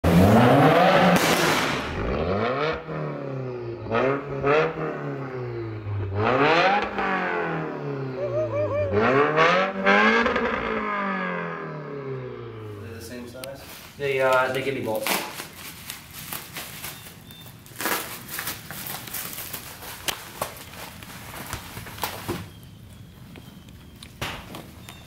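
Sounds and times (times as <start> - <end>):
car engine revving: 0.0 - 13.1
exhaust cracks: 0.0 - 16.6.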